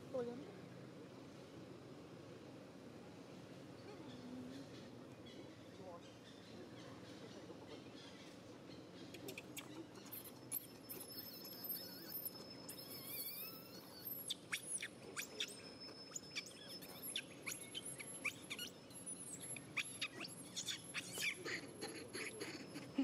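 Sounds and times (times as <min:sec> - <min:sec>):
baby monkey crying: 0:19.5 - 0:23.0.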